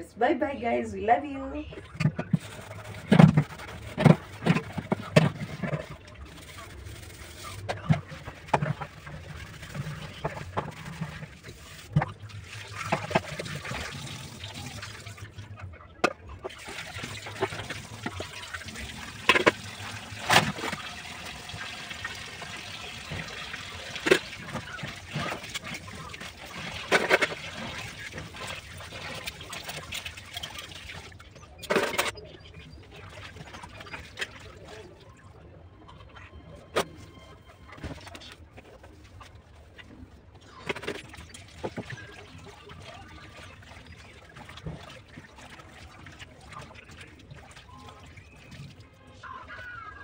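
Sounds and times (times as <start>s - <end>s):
water trickling and splashing: 1.7s - 36.2s, 36.8s - 49.5s
metal pots clattering in sink: 16.0s - 31.0s.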